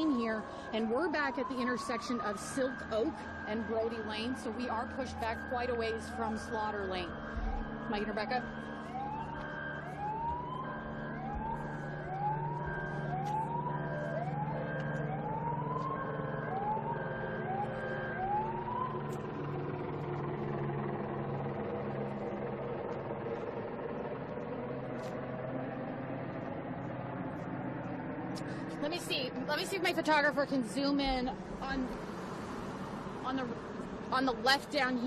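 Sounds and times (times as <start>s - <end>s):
emergency siren sweeping: 0.0s - 35.0s
traffic rumble: 0.0s - 35.0s.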